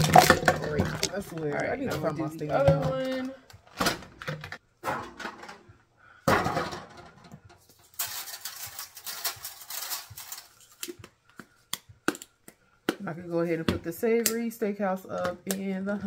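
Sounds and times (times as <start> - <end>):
kitchen items clattering: 0.0 - 11.0
rustling: 7.6 - 11.0.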